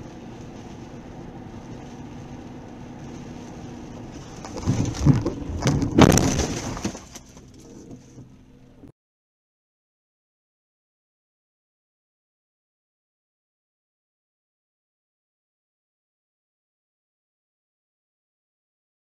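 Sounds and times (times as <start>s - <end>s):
road noise inside car: 0.0s - 8.9s
car collision bangs and crunching: 4.2s - 7.5s.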